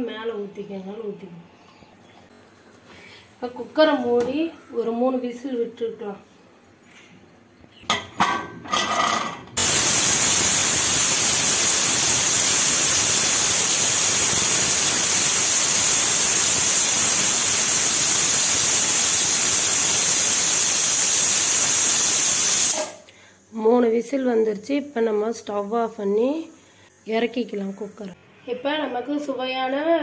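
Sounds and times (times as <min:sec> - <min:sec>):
pressure cooker whistling: 0:09.6 - 0:23.0.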